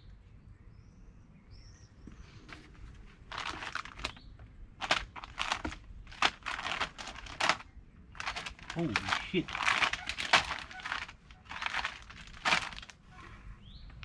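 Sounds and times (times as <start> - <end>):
plastic packaging crinkling: 3.2 - 4.2, 4.8 - 13.0.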